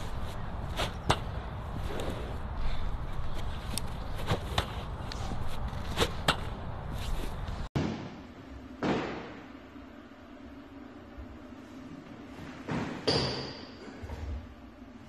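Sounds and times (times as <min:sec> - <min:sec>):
ball thud in echoing room: 0:07.8 - 0:09.8, 0:12.4 - 0:13.8.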